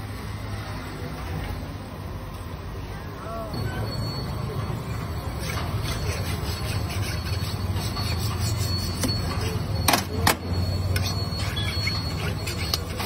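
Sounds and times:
knife scraping through meat: 0:05.4 - 0:09.6, 0:10.9 - 0:13.0.

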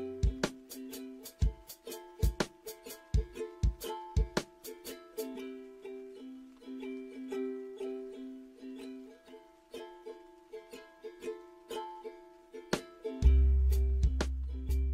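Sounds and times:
plucked notes over held chords: 0:00.0 - 0:14.9
deep bass: 0:13.2 - 0:14.9.

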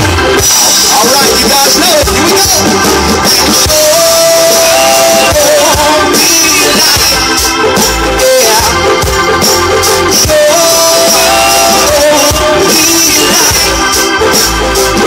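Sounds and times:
live rock band playing: 0:00.0 - 0:15.0
person singing long notes: 0:03.5 - 0:07.3, 0:10.0 - 0:13.9.

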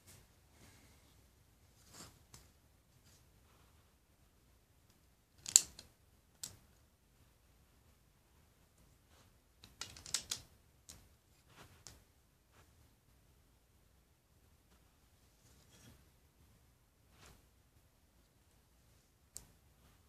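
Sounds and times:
plastic bricks clicking: 0:05.4 - 0:05.8, 0:09.6 - 0:10.4.

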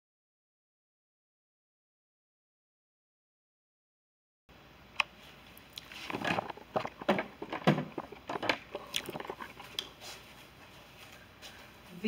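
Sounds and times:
handling clicks and rustles: 0:05.0 - 0:11.2.

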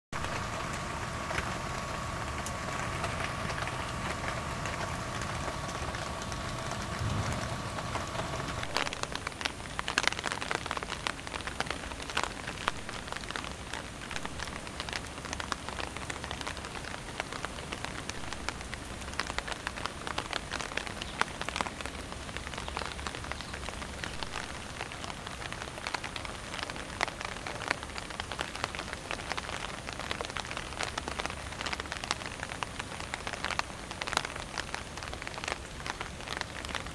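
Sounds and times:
rain pattering: 0:00.1 - 0:36.9
steady hum: 0:00.2 - 0:09.5.

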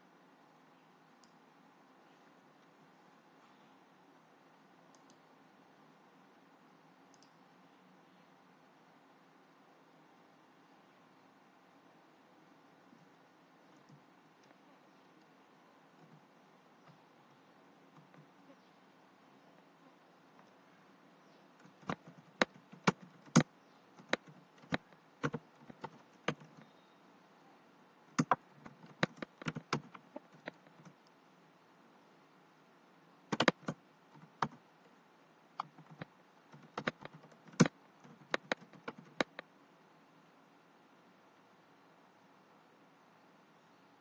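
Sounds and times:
typing on computer keyboard: 0:21.6 - 0:26.7, 0:28.2 - 0:31.0, 0:33.3 - 0:34.6, 0:35.6 - 0:39.4.

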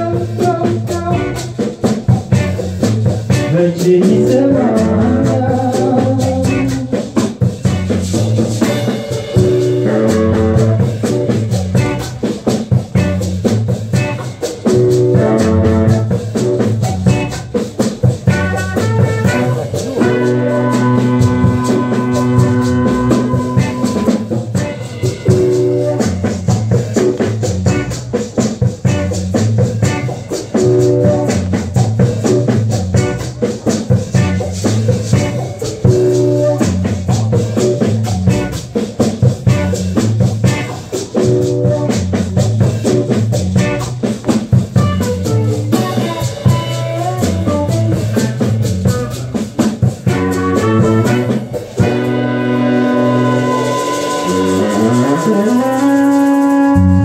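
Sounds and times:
saxophone and trumpet riffs: 0:00.0 - 0:01.7, 0:08.6 - 0:12.2, 0:13.9 - 0:28.0, 0:28.8 - 0:33.4, 0:34.1 - 0:38.6, 0:44.6 - 0:57.0
bass line: 0:00.0 - 0:57.0
drum kit and shaker groove: 0:00.0 - 0:57.0.

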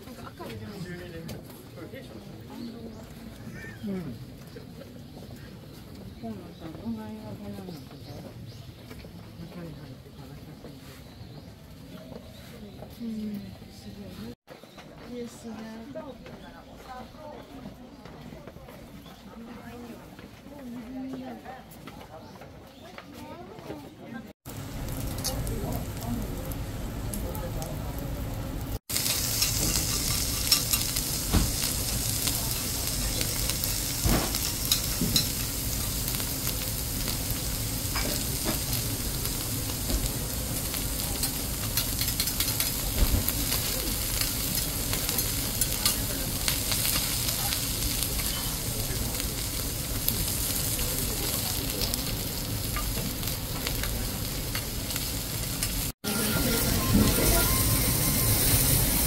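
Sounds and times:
meat sizzling with pops: 0:28.7 - 0:59.0.

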